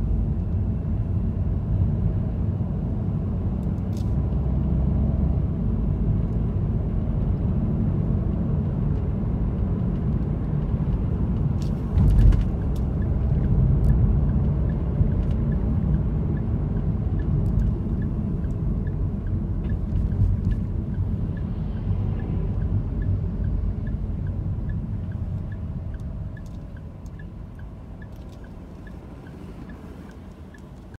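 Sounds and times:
car engine and road noise: 0.0 - 31.0
faint regular ticking: 12.5 - 31.0.

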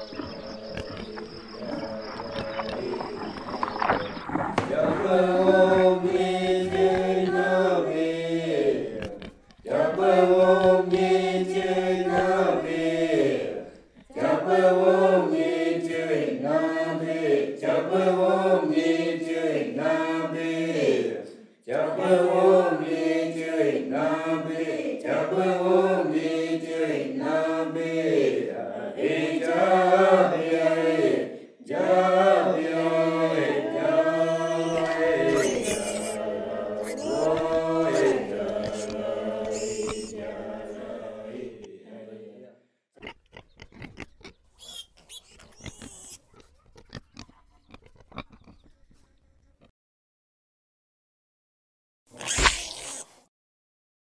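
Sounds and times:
voices chanting together: 0.0 - 42.7.

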